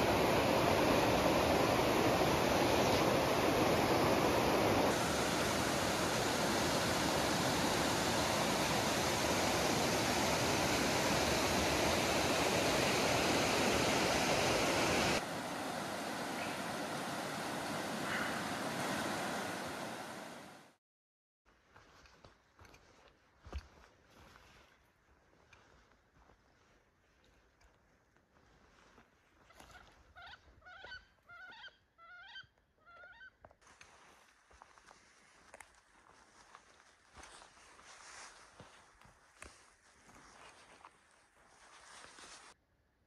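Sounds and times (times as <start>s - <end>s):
falling water rushing: 0.0s - 20.6s.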